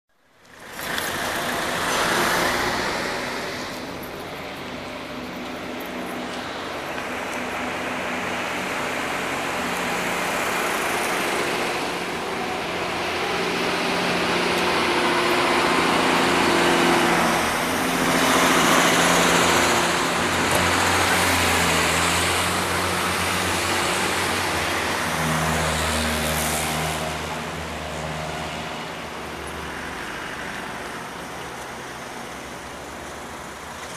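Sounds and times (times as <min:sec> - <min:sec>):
vehicles passing on a street: 0:00.1 - 0:33.9
low engine drone: 0:00.4 - 0:33.6.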